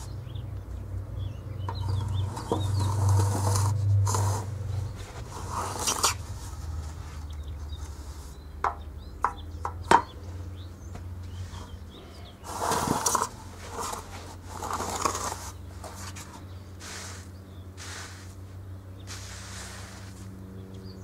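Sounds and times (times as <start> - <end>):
small birds chirping: 0.0 - 21.0
metal straightedge scraping sand: 1.8 - 4.6, 5.2 - 6.6, 12.4 - 18.4, 19.0 - 20.3.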